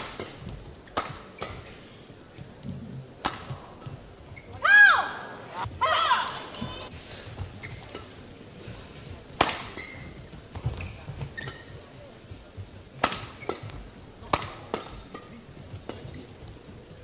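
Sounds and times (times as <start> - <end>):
rackets striking shuttlecock: 0.0 - 1.8, 3.2 - 4.0, 9.4 - 10.1, 13.0 - 16.3
short high squeaks: 9.8 - 10.2.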